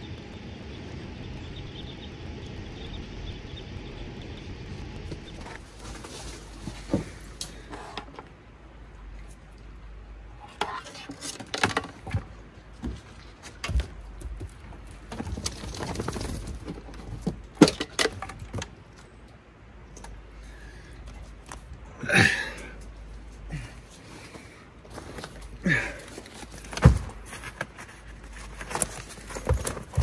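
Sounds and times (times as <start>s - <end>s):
gear clunking and rattling: 28.4s - 30.0s.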